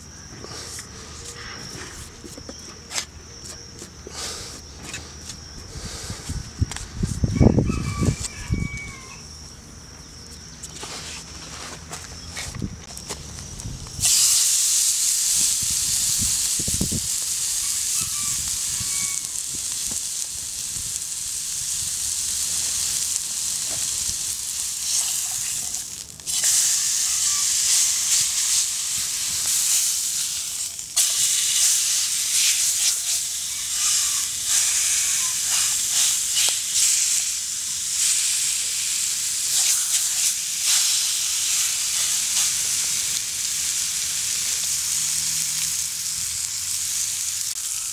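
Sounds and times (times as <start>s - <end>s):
steak sizzling in frying pan: 14.0s - 47.9s.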